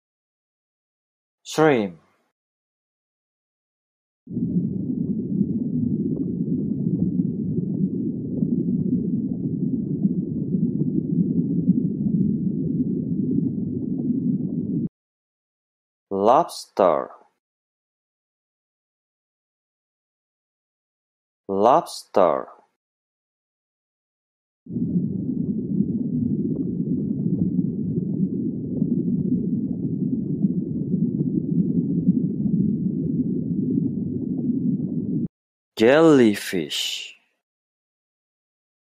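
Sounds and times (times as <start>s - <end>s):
underwater rumble and gurgle: 4.3s - 14.9s, 24.7s - 35.3s.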